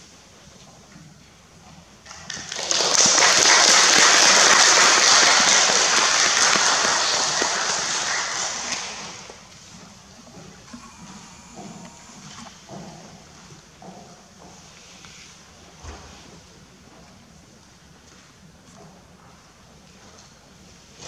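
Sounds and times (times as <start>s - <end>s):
audience applauding: 2.1s - 9.4s, 10.7s - 12.5s.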